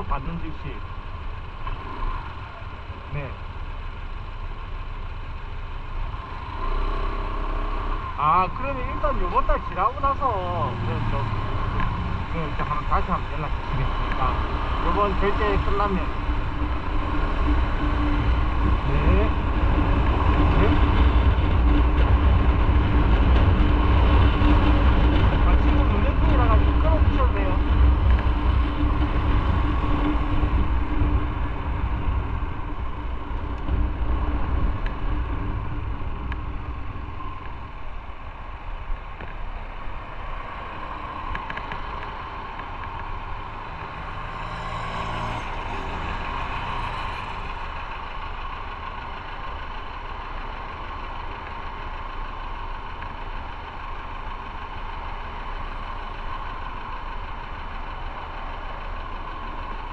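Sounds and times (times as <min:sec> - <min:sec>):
motorcycle engine: 0:00.0 - 0:59.9
road and wind noise: 0:00.0 - 0:59.9.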